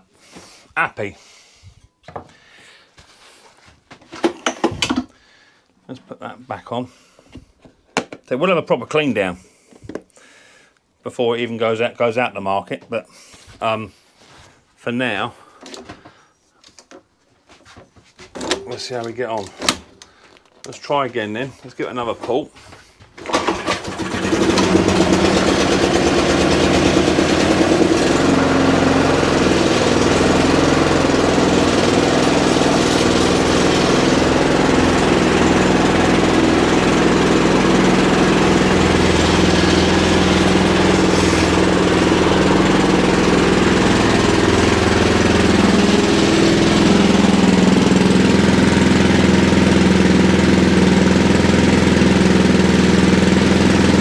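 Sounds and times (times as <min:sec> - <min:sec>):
lawn mower engine running: 0:23.2 - 0:54.0.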